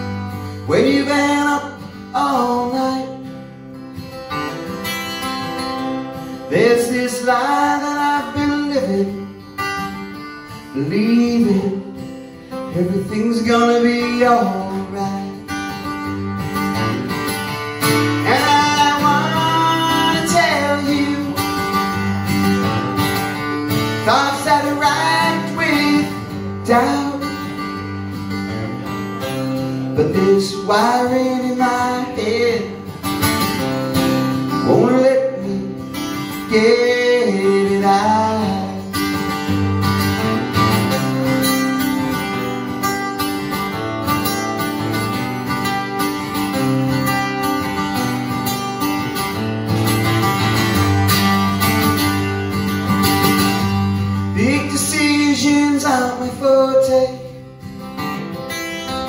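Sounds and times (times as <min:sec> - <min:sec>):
acoustic guitar strumming: 0:00.0 - 0:59.0
man singing: 0:00.5 - 0:03.6, 0:06.4 - 0:09.6, 0:10.6 - 0:15.9, 0:17.8 - 0:22.1, 0:23.7 - 0:27.9, 0:29.8 - 0:33.3, 0:34.3 - 0:39.4, 0:53.9 - 0:57.7.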